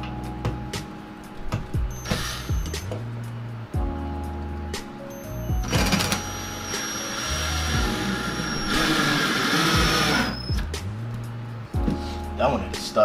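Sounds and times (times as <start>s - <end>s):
background music: 0.0s - 13.0s
cordless drill whining: 1.9s - 2.9s, 5.2s - 10.6s.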